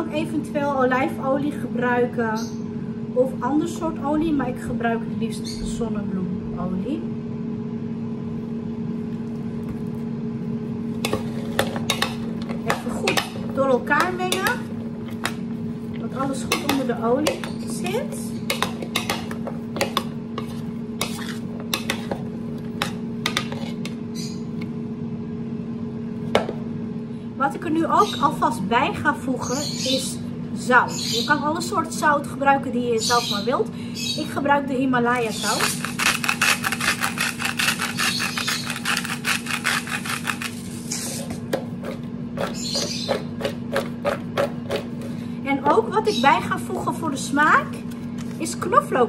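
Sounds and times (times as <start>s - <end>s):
steady low hum: 0.0s - 49.0s
metal spoon scraping a bowl: 11.0s - 15.4s, 16.2s - 22.2s, 22.8s - 24.0s, 35.3s - 45.2s
salt grinder rasping clicks: 35.6s - 40.6s.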